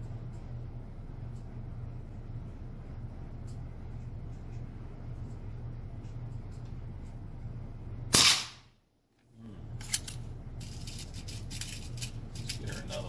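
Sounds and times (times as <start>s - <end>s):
air rifle shot: 8.1s - 8.7s.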